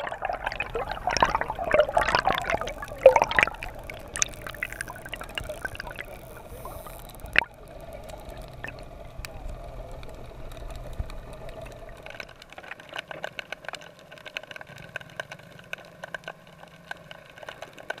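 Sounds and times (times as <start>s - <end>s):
low underwater rumble: 0.0s - 12.6s
clicks and crackles: 0.0s - 18.0s.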